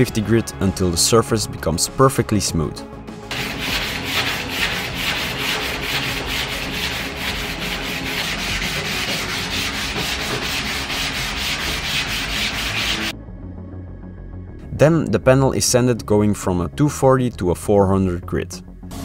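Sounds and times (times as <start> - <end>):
hand sanding scraping: 3.3 - 13.1.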